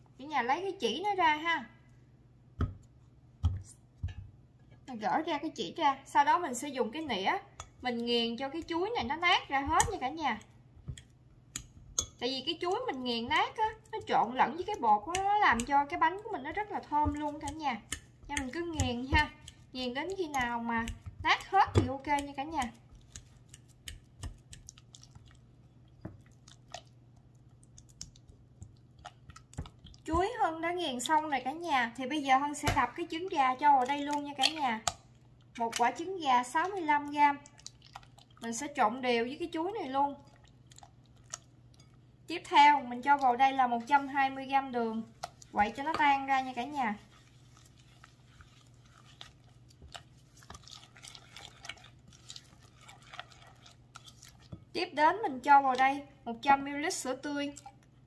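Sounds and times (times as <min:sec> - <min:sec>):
wet squishes of mashing banana: 0:06.1 - 0:58.0
spatula stirring in glass bowl: 0:07.6 - 0:38.7, 0:40.2 - 0:55.9
spatula tapping glass bowl: 0:10.9 - 0:12.2.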